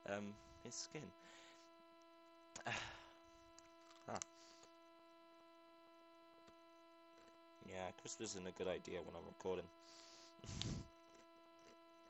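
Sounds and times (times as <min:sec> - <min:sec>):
steady electrical hum: 0:00.0 - 0:12.0
crisps being crunched: 0:10.5 - 0:11.8.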